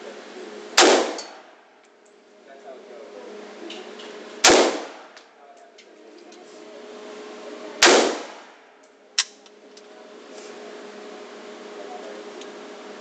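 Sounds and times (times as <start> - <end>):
rifle shots with echo: 0.8 - 1.4, 4.4 - 5.2, 7.8 - 8.6.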